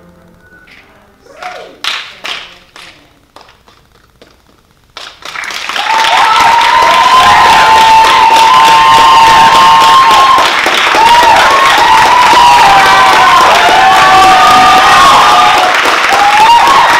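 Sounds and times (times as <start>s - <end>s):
audience applause: 1.4s - 16.9s
crowd cheering: 5.2s - 16.9s.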